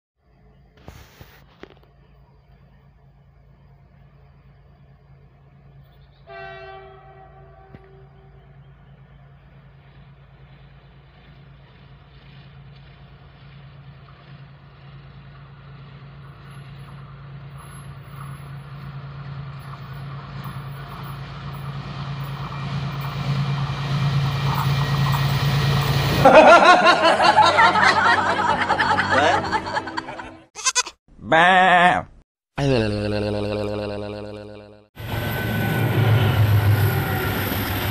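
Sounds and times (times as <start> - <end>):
diesel locomotive engine hum: 0.2 - 30.5, 34.0 - 37.9
wavering comic sound effect: 30.6 - 34.9.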